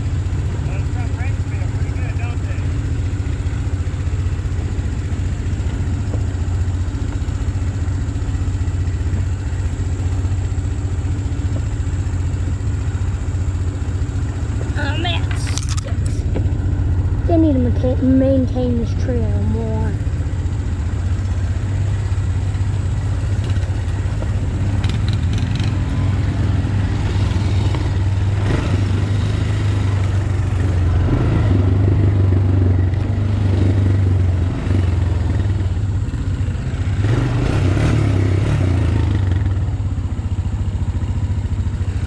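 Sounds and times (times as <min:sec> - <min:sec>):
atv engine running: 0:00.0 - 0:42.0
clatter and knocks over bumps: 0:05.6 - 0:07.3, 0:11.2 - 0:12.0, 0:13.7 - 0:16.6, 0:22.5 - 0:25.8.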